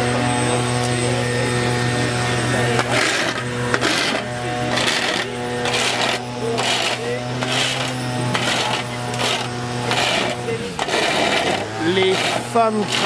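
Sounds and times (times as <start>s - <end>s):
steady low hum: 0.0s - 13.0s
metal rake scraping asphalt: 2.6s - 13.0s.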